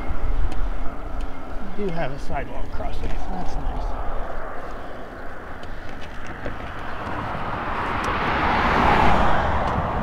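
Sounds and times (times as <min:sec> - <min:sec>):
car driving past: 0:02.9 - 0:10.0.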